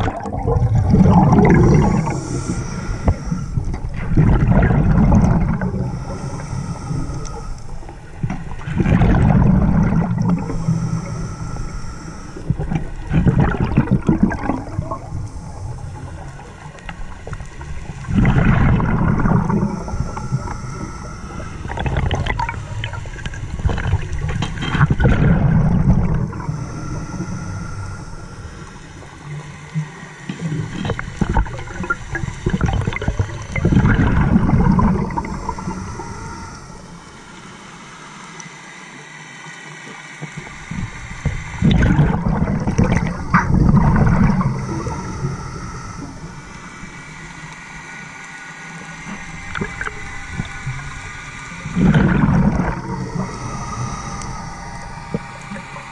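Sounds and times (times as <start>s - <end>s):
gurgling exhaled bubbles: 0.0s - 37.1s, 40.7s - 47.1s, 48.9s - 55.9s
scuba regulator hissing inhale: 0.9s - 16.8s, 17.5s - 24.1s, 24.8s - 39.5s, 40.4s - 55.9s.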